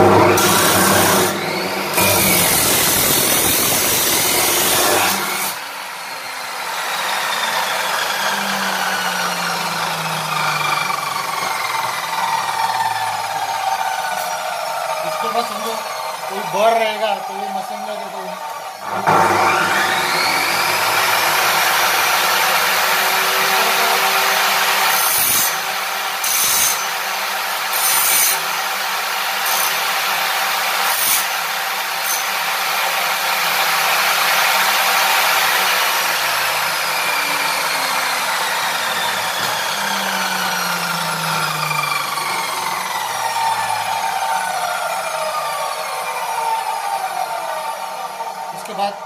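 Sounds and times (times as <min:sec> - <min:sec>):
abrasive wheel grinding steel tube: 0:00.0 - 0:27.0, 0:33.5 - 0:45.1
cut-off saw whine: 0:00.0 - 0:49.0.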